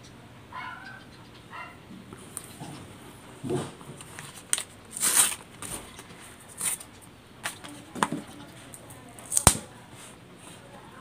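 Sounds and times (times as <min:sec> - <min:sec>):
paper crinkling and rustling: 0:03.6 - 0:10.6.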